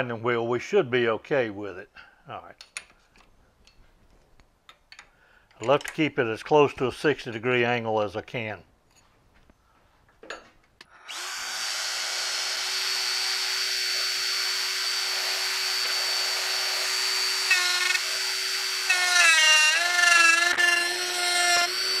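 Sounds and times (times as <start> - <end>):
die grinder high whine: 10.9 - 22.0.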